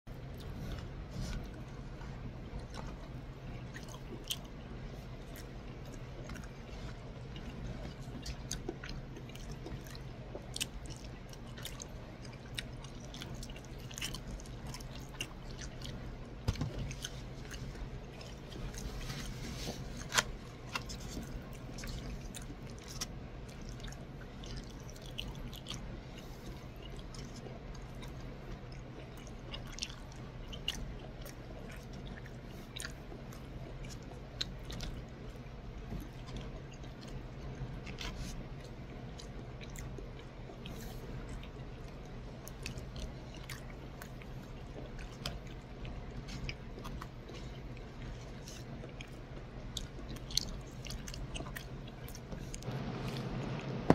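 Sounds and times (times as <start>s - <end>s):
steady low hum: 0.0s - 53.9s
chewing soft food: 0.1s - 53.9s.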